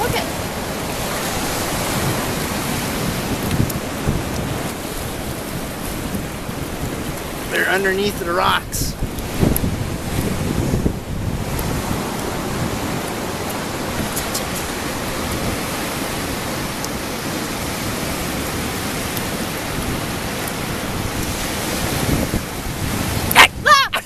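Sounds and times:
ocean surf: 0:00.0 - 0:24.0
wind buffeting microphone: 0:00.0 - 0:24.0.

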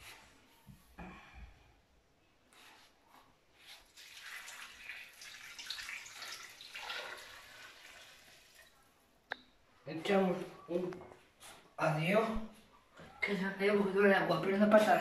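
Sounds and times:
water pouring into pot: 0:03.9 - 0:08.7.

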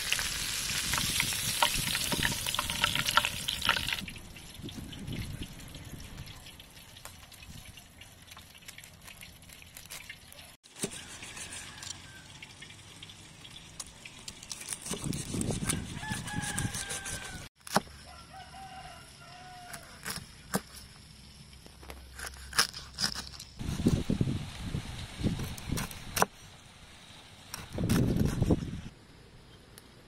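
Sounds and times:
knife crunching through crackling: 0:13.8 - 0:18.0, 0:19.6 - 0:20.9, 0:21.8 - 0:24.0, 0:27.5 - 0:28.6.

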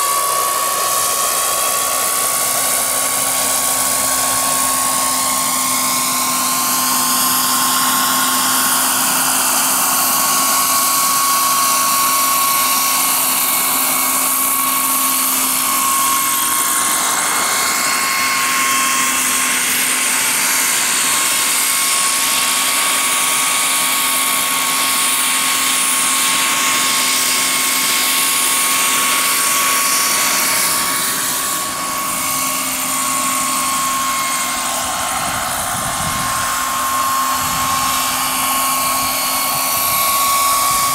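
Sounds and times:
model helicopter turbine whine: 0:00.0 - 0:40.9.

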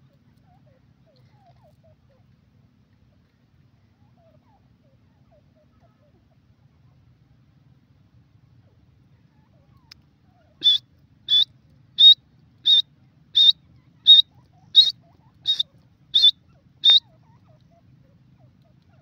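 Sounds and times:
bird whistled calls: 0:10.6 - 0:12.8, 0:13.4 - 0:17.1.

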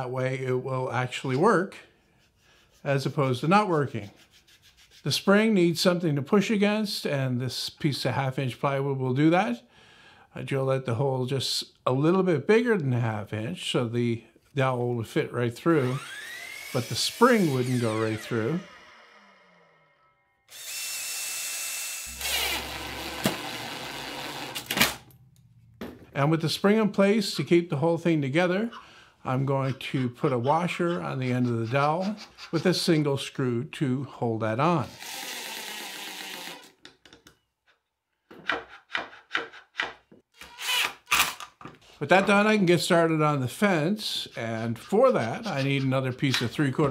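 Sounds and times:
cordless drill driving screw: 0:15.8 - 0:18.9, 0:20.5 - 0:24.9, 0:34.9 - 0:36.7, 0:40.4 - 0:41.5
impact driver bursts: 0:22.0 - 0:25.0
loud drill clicks: 0:22.0 - 0:25.0, 0:40.4 - 0:41.5.

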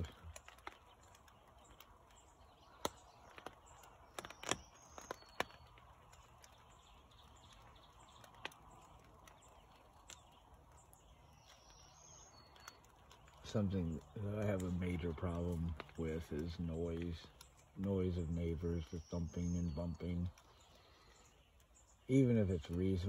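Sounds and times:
bird chirping: 0:00.0 - 0:23.0
distant car tyres on road: 0:00.0 - 0:23.0
sharp ticks: 0:00.0 - 0:23.0.

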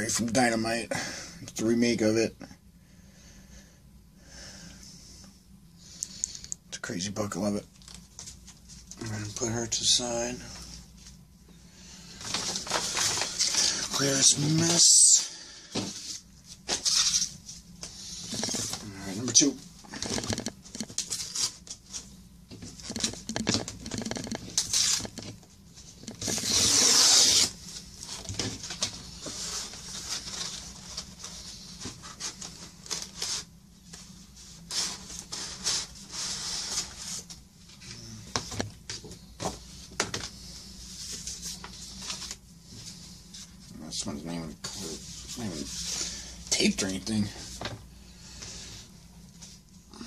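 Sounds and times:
paper envelope rustling: 0:12.1 - 0:15.0, 0:26.0 - 0:37.4
paper tearing: 0:26.1 - 0:27.6.

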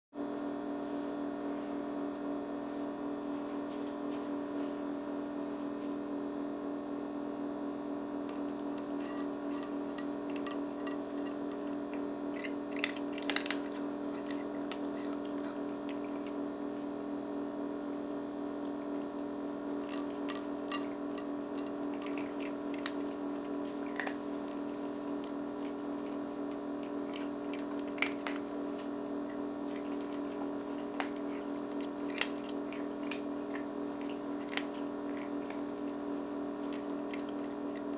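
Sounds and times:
refrigerator humming: 0:00.2 - 0:37.9
cats crunching dry treats: 0:08.3 - 0:37.9.

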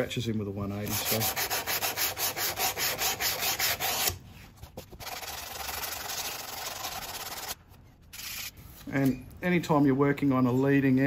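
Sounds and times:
hand sanding strokes: 0:00.9 - 0:04.2, 0:05.0 - 0:07.6.

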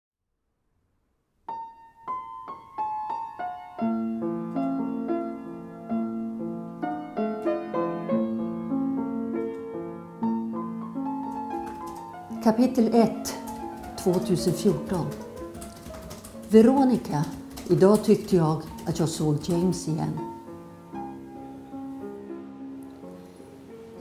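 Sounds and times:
slow quiet piano music: 0:01.4 - 0:24.0.

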